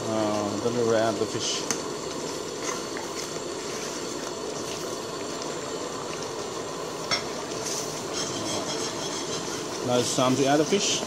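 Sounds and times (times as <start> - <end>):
thick sauce simmering: 0.0 - 11.0
metal ladle stirring: 7.2 - 10.1.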